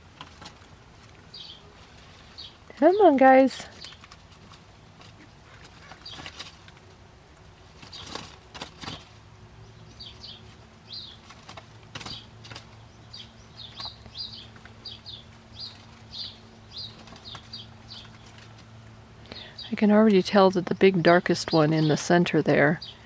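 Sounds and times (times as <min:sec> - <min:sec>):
faint steady hum: 0:00.0 - 0:23.0
ducklings pecking clicks: 0:02.8 - 0:09.2, 0:10.2 - 0:19.5.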